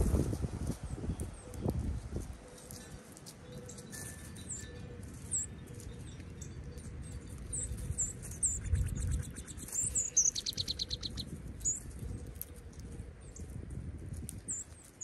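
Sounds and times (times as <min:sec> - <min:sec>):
songbirds chirping: 0:00.6 - 0:15.0
fast bird trill: 0:03.4 - 0:11.9.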